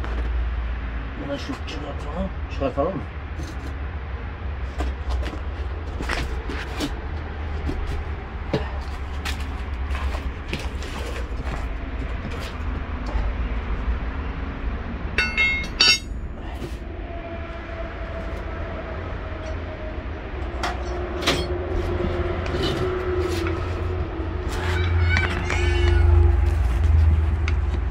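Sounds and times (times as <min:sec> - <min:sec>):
steady low rumble: 0:00.0 - 0:24.6.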